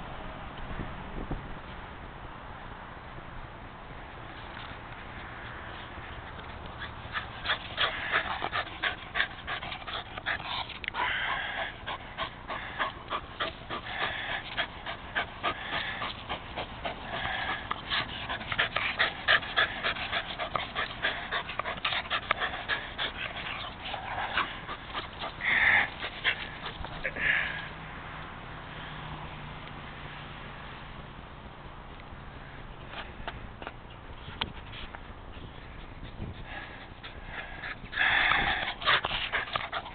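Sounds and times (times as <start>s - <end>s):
dog panting: 5.7s - 27.4s, 34.6s - 39.9s.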